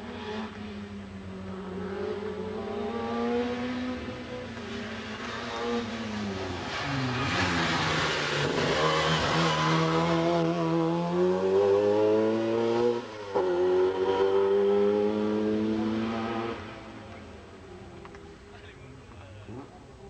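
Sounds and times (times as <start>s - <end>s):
race car engine revving hard: 1.4s - 17.1s.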